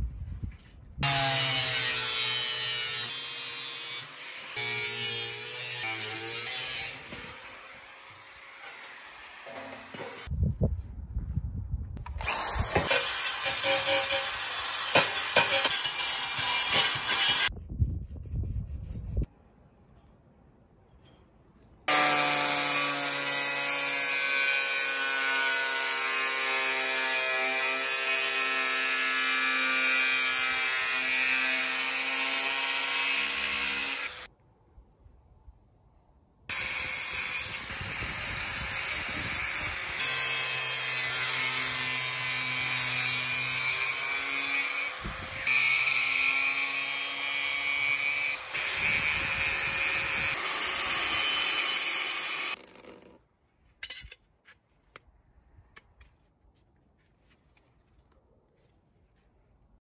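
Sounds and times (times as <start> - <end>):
angle grinder cutting metal: 1.0 - 10.3, 12.1 - 17.5, 21.9 - 34.3, 36.5 - 53.2.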